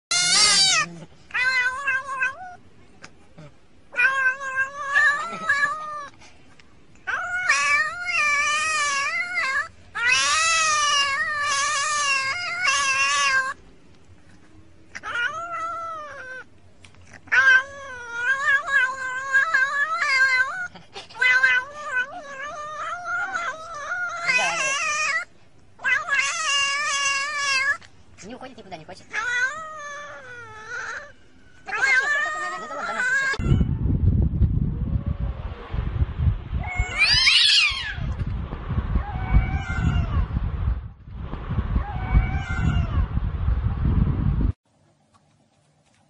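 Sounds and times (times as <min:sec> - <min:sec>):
cat yowling and meowing: 0:00.1 - 0:02.6, 0:03.9 - 0:06.2, 0:07.0 - 0:13.6, 0:14.9 - 0:16.5, 0:17.2 - 0:27.9, 0:29.1 - 0:33.8, 0:36.6 - 0:38.2, 0:39.0 - 0:40.3, 0:41.8 - 0:43.1.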